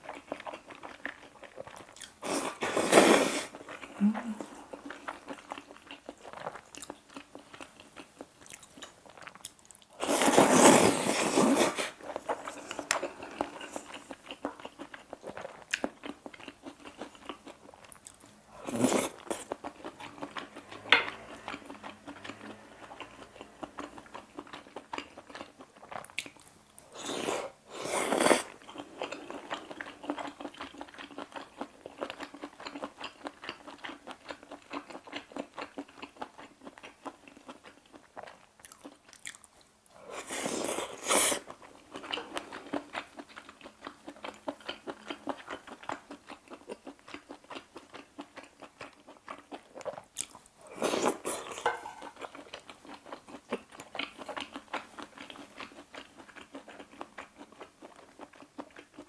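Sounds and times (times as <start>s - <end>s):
slurping noodles: 2.2s - 4.6s, 10.0s - 13.9s, 18.6s - 19.4s, 26.9s - 28.6s, 40.0s - 41.5s.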